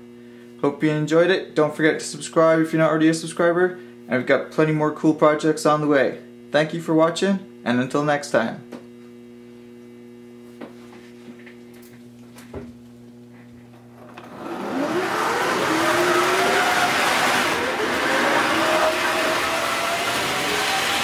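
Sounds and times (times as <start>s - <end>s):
steady electrical hum: 0.0s - 21.0s
model train motor whirring: 14.0s - 21.0s.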